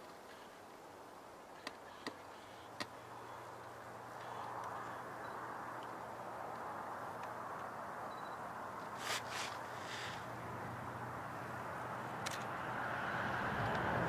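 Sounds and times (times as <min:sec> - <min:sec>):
faint rushing noise: 0:03.2 - 0:14.0.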